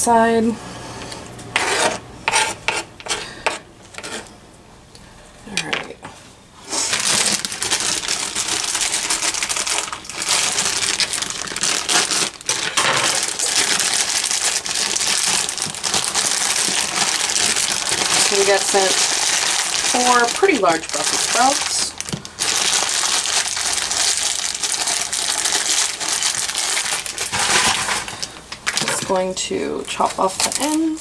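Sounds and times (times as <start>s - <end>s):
plastic bag crinkling: 6.7s - 31.0s.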